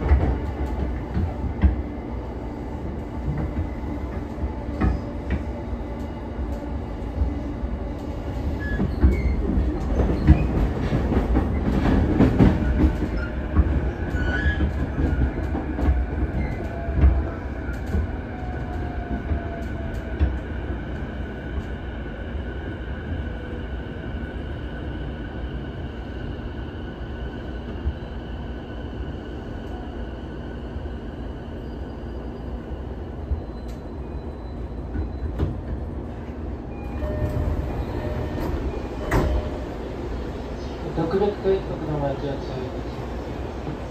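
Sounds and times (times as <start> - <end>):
train wheel rumble: 0.0 - 24.4, 34.8 - 43.9.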